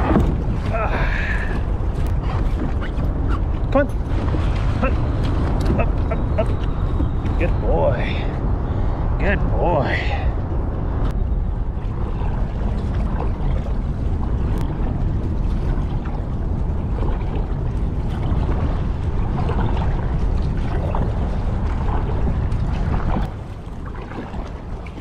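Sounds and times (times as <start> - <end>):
paddle strokes splashing: 0.0 - 7.6, 11.7 - 25.0
water lapping at hull: 0.0 - 25.0
wind rumble on microphone: 0.0 - 25.0.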